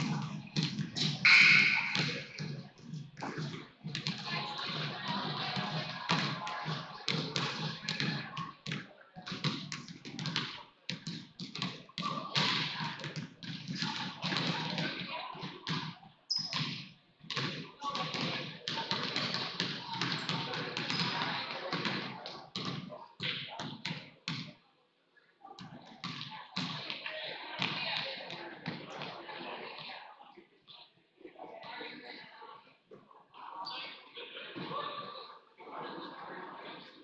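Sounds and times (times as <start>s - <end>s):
basketballs bouncing on hardwood floor: 5.6s - 24.5s
shoe squeak: 16.3s - 16.6s.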